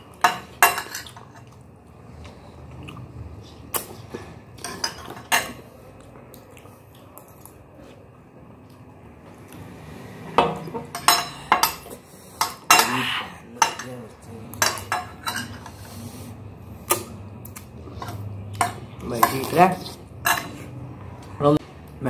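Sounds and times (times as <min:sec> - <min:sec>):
cutlery clinking on plates: 0:00.1 - 0:01.6, 0:04.6 - 0:05.6, 0:10.3 - 0:13.0, 0:13.6 - 0:14.0, 0:14.6 - 0:15.8, 0:18.0 - 0:19.6, 0:20.2 - 0:20.7.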